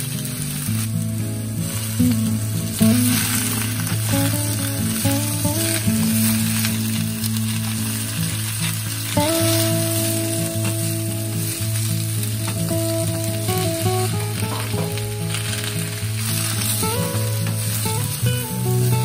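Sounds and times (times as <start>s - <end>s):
soft background music: 0.0s - 19.0s
vegetables sizzling in oil: 0.0s - 19.0s.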